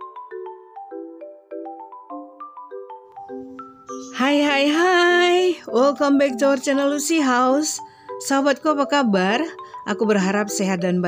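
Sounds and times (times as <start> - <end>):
bright melody of struck notes: 0.0 - 11.0.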